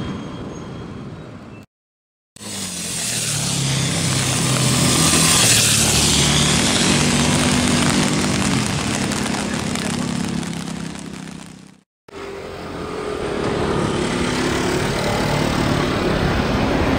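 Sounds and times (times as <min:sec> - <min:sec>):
vehicle passing by: 0:02.4 - 0:11.4.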